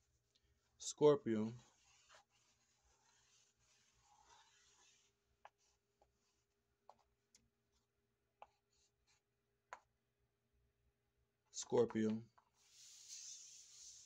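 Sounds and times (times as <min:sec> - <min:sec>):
chalk scraping on floor: 0:01.4 - 0:05.6, 0:12.6 - 0:14.0.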